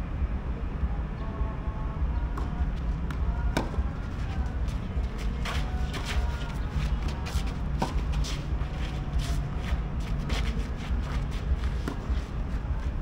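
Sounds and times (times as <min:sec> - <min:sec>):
steady low rumble: 0:00.0 - 0:13.0
shoes scuffing on clay court: 0:03.1 - 0:13.0.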